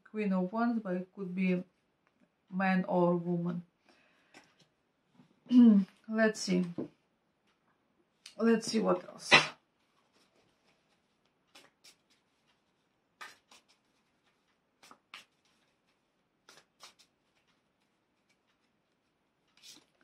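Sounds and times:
cards shuffling: 0:10.1 - 0:18.7, 0:19.5 - 0:20.0.

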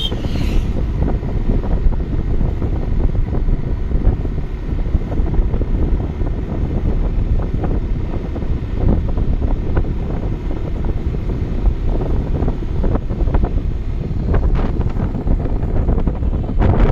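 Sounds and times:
road noise: 0:00.0 - 0:16.9
wind buffeting microphone: 0:00.0 - 0:16.9.

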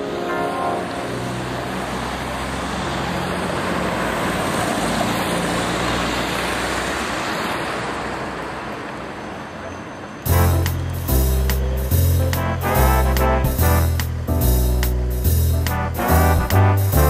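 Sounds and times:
music: 0:00.0 - 0:01.4, 0:10.3 - 0:17.0
road traffic: 0:00.0 - 0:17.0.

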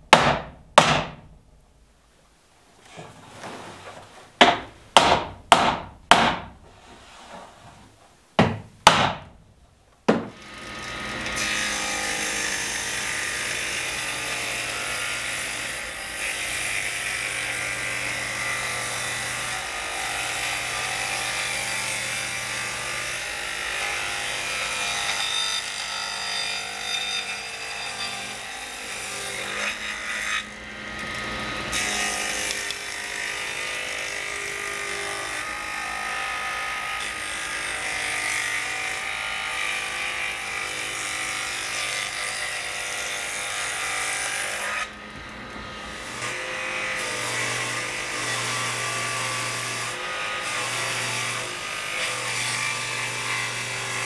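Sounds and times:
table saw cutting wood: 0:10.3 - 0:54.0.

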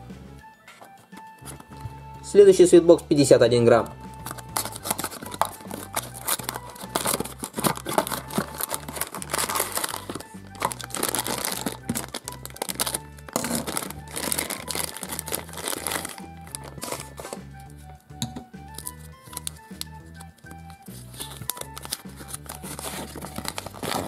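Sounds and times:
background music: 0:00.0 - 0:24.0
plastic wrapper crinkling: 0:04.2 - 0:17.4, 0:18.7 - 0:24.0
cardboard box tearing: 0:04.6 - 0:17.4, 0:21.3 - 0:24.0.

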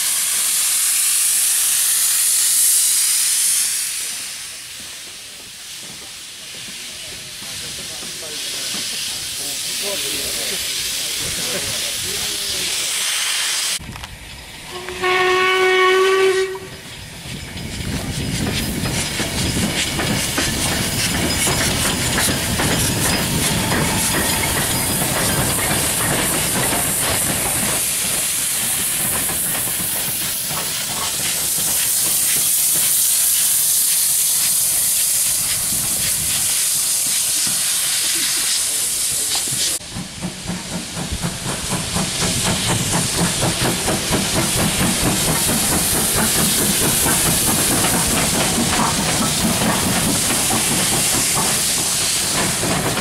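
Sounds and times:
hissing steam: 0:00.0 - 0:53.0
steam locomotive rumbling past: 0:00.0 - 0:53.0
steam whistle blast: 0:14.7 - 0:16.8
rail clatter: 0:16.4 - 0:33.1, 0:39.3 - 0:53.0.

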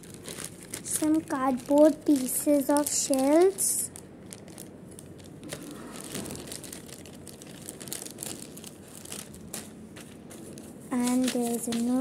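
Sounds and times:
plastic packet crinkling: 0:00.0 - 0:12.0.

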